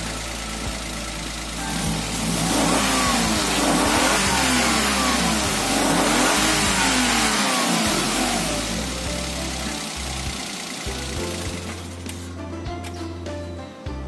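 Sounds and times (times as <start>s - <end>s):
car engine revving: 0.0s - 12.2s.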